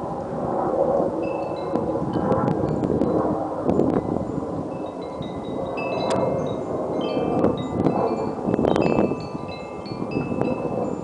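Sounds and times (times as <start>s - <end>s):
rushing wind: 0.0s - 11.0s
wind chimes ringing: 1.2s - 2.3s, 4.0s - 11.0s.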